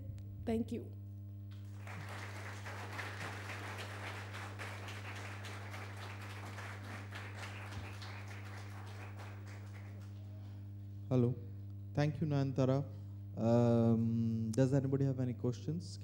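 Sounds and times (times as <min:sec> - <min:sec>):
low steady hum: 0:00.0 - 0:16.0
audience applauding: 0:01.6 - 0:10.4.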